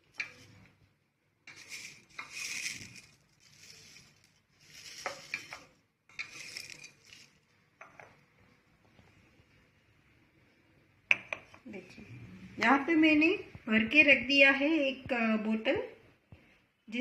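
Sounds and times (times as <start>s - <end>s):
dry leaves rustling and crackling: 2.4s - 5.5s.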